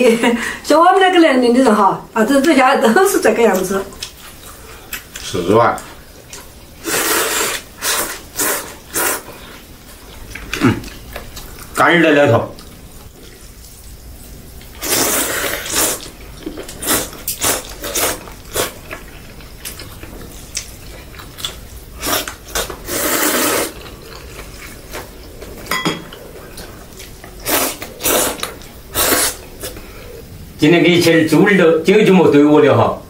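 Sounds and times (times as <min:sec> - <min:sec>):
man slurping noodles: 0:06.8 - 0:09.5, 0:14.8 - 0:16.1, 0:22.0 - 0:24.1, 0:27.4 - 0:29.7.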